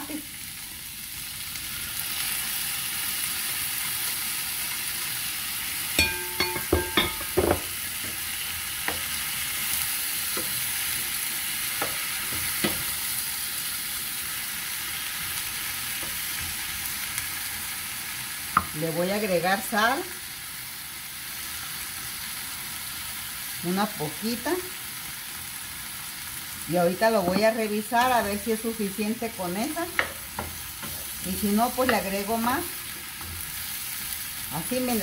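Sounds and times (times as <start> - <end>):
vegetables sizzling in a pan: 0.0 - 35.0
spoon knocking against pan: 6.0 - 8.2, 29.9 - 31.1.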